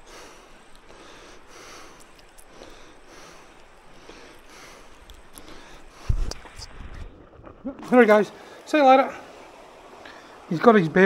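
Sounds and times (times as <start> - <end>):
man breathing quickly: 0.0 - 6.5.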